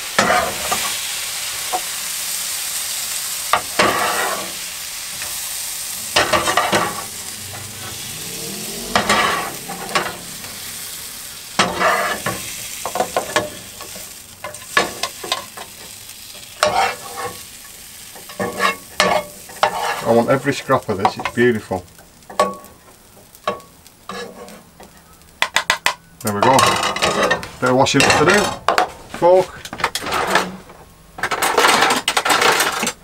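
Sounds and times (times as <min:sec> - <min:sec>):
food sizzling in a frying pan: 0:00.0 - 0:30.6, 0:31.2 - 0:33.0
metal spatula scraping a pan: 0:00.1 - 0:01.0, 0:03.5 - 0:21.4, 0:23.5 - 0:25.8, 0:26.4 - 0:29.0, 0:29.8 - 0:30.6.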